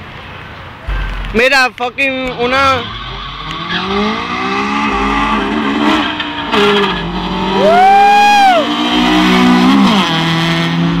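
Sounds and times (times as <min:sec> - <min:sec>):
race cars accelerating: 0:02.2 - 0:11.0.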